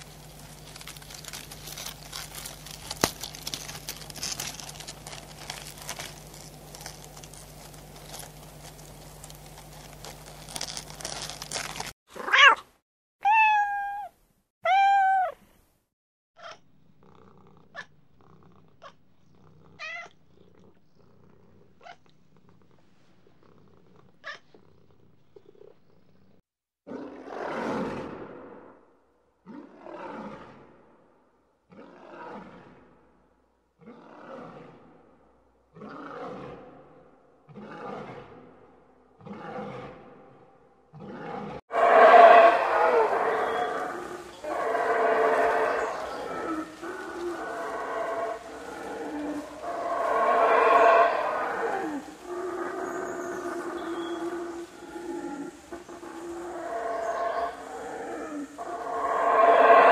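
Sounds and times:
cat meowing: 12.2 - 15.4, 19.8 - 20.1.

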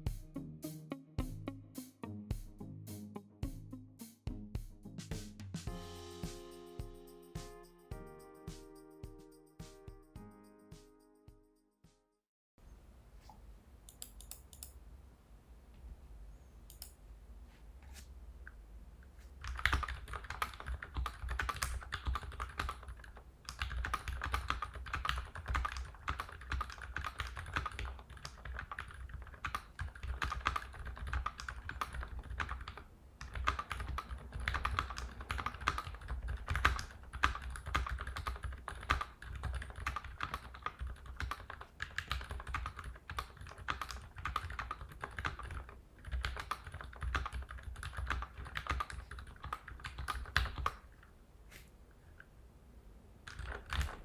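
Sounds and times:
fast mechanical keyboard typing: 19.4 - 50.9, 53.2 - 54.0.

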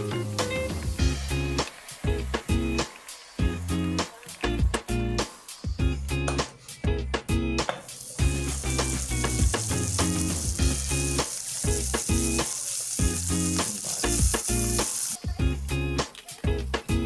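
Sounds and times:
butter sizzling in a pan: 0.0 - 5.8, 7.9 - 15.4
music with steady beat: 0.0 - 17.0.

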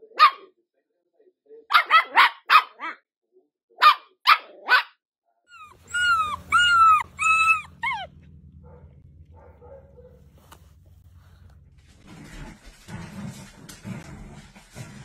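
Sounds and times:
dog whining: 5.5 - 8.2
puppy yapping: 5.5 - 10.6
steady low hum: 5.8 - 14.4.

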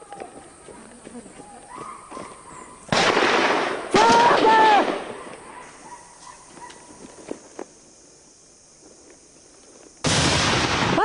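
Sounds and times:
faint hiss: 2.2 - 11.0.

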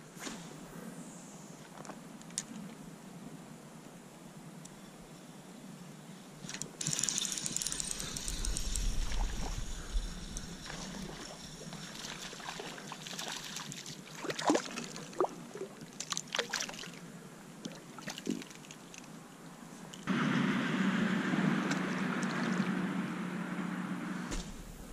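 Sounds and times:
river water sloshing and trickling: 10.4 - 17.0, 17.6 - 19.2, 21.6 - 22.8.

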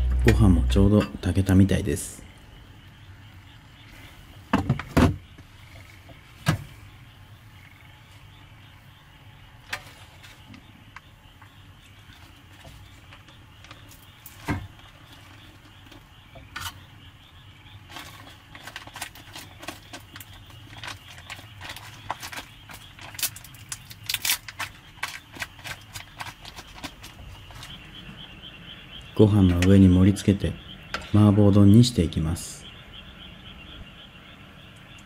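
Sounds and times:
low steady hum: 0.0 - 18.8.

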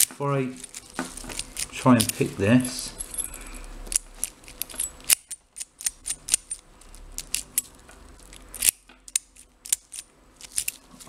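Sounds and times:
keys jangling on keyring: 2.8 - 6.6.

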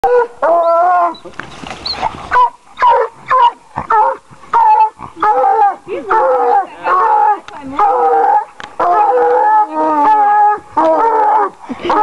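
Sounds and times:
dog baying: 1.9 - 12.0
dog barking: 2.3 - 5.4.

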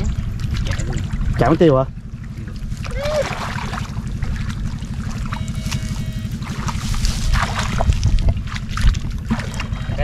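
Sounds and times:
water sloshing: 0.0 - 10.0
wind rumble on microphone: 0.0 - 10.0
short splashes: 2.2 - 10.0.

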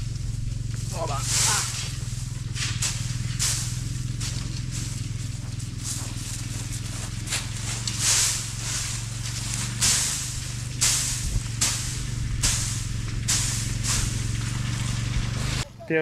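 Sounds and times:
hay rustling and swishing: 0.0 - 16.0
low engine hum: 0.0 - 16.0.

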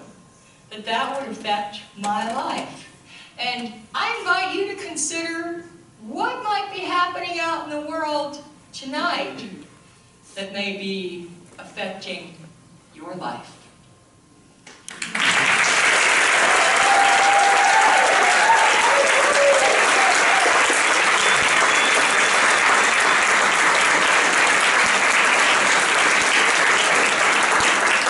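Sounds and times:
audience applauding: 14.9 - 28.0.

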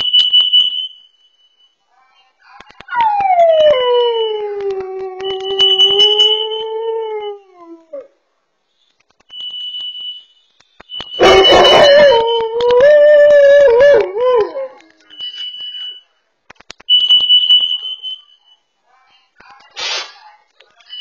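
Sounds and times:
alarm beeping: 5.3 - 6.6, 9.3 - 12.5, 16.9 - 18.6.

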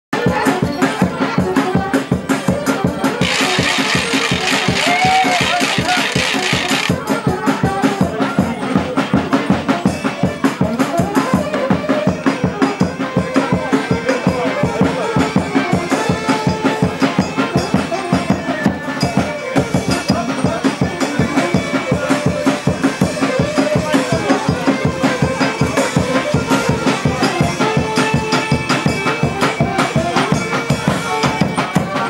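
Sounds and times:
folk music: 0.2 - 32.0
drum beating: 3.2 - 7.1
rattling percussion: 3.2 - 7.1.

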